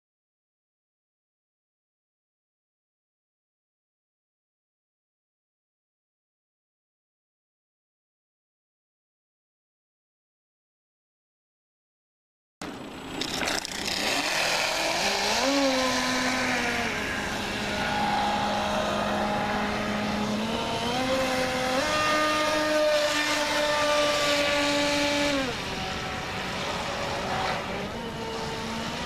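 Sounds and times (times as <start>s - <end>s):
rc boat motor whining: 12.6s - 29.0s.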